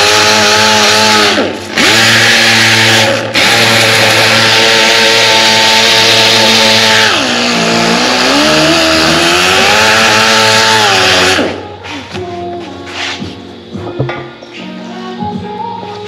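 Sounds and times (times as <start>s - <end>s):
angle grinder grinding metal: 0.0s - 11.6s.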